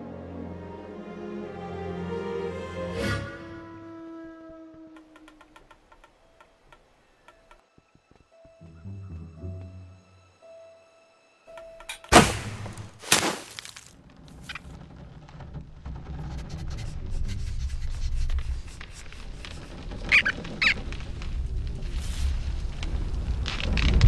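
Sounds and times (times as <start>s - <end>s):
low rumble: 14.0s - 24.0s
high cartoon squeaks: 19.3s - 20.8s.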